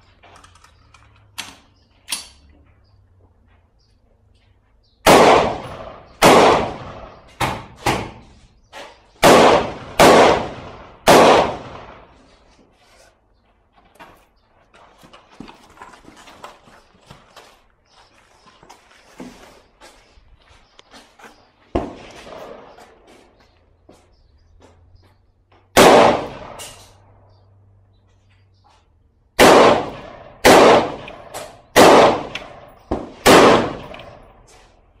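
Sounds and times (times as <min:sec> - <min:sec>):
rifle shots with echo: 0:05.0 - 0:08.4, 0:09.2 - 0:12.2, 0:21.8 - 0:23.1, 0:25.7 - 0:27.1, 0:29.4 - 0:34.4.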